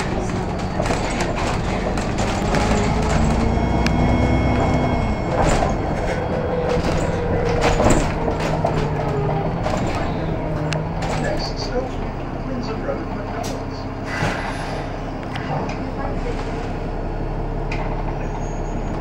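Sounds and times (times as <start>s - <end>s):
rattles and knocks of bus body: 0.0s - 12.1s
bus engine drone: 0.0s - 19.0s
high ringing tone: 2.9s - 7.4s.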